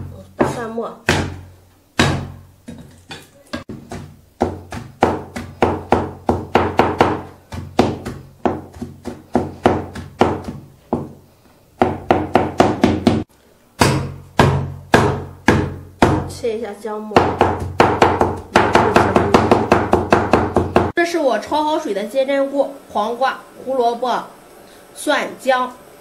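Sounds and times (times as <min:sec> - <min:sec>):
cleaver chopping on wooden board: 0:00.4 - 0:01.4, 0:02.0 - 0:11.2, 0:11.8 - 0:16.3, 0:17.2 - 0:20.9.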